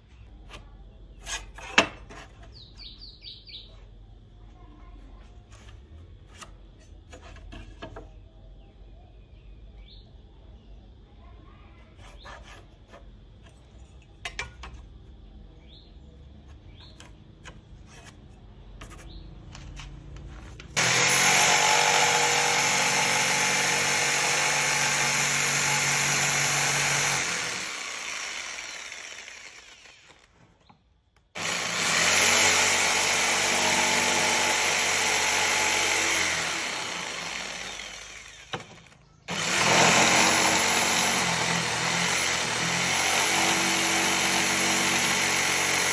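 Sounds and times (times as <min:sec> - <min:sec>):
electric jigsaw cutting wood: 0:20.8 - 0:30.4, 0:31.4 - 0:45.9.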